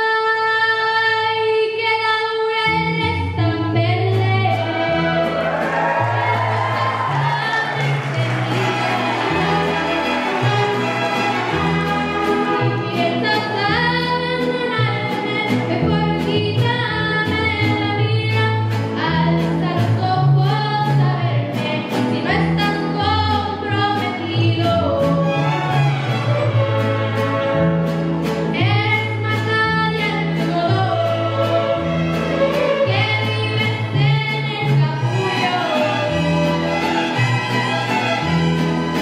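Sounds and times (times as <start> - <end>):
girl singing: 0.0 - 4.7, 12.8 - 25.3, 28.6 - 31.8, 32.8 - 35.9
bass line: 2.7 - 39.0
strummed guitar: 3.7 - 39.0
violins: 4.1 - 20.4, 21.1 - 39.0.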